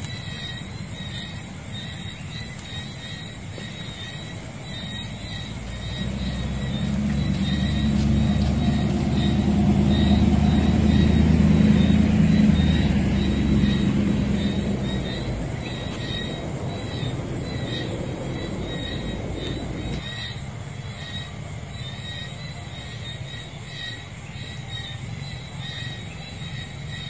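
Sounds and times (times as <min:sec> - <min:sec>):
vehicle engine hum passing by: 0:01.0 - 0:20.1.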